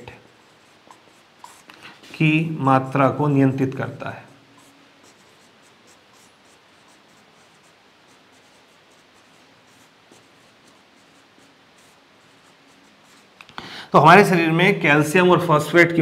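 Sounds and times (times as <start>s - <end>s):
marker pen writing on whiteboard: 0.0s - 2.4s, 4.5s - 13.5s.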